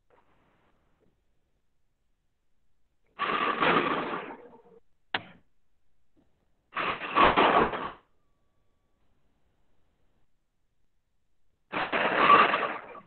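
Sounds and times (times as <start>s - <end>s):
bursts of clattering: 3.2s - 4.6s, 6.7s - 8.1s, 11.7s - 13.0s.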